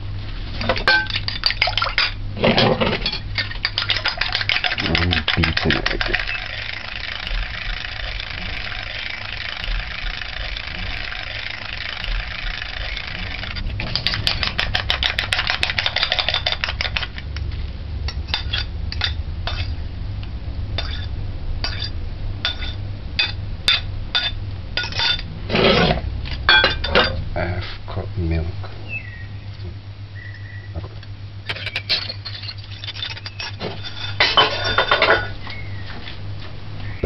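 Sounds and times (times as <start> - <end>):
low steady hum: 0.0 - 37.0
fork beating egg on plate: 3.4 - 8.8, 12.0 - 17.3.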